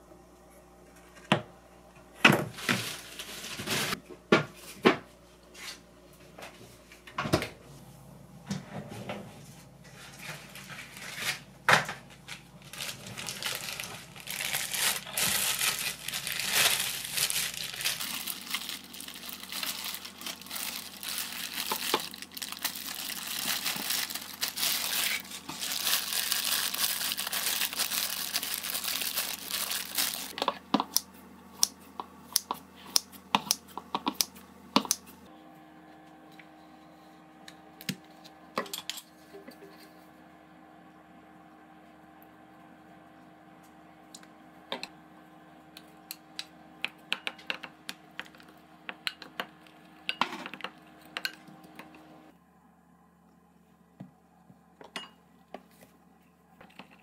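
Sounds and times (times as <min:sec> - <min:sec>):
paper wrapping rustling: 0:02.5 - 0:04.0, 0:12.1 - 0:30.4
plastic gloves crinkling: 0:02.5 - 0:04.0, 0:10.1 - 0:30.4.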